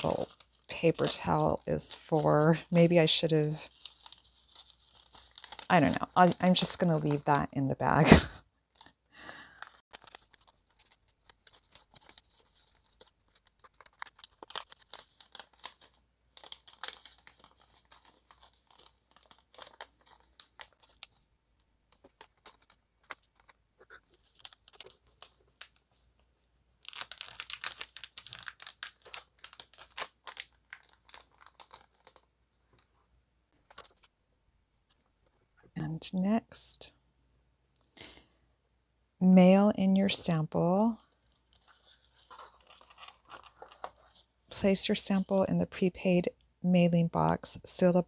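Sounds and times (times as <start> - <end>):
plastic bags rustling: 0.0 - 7.4.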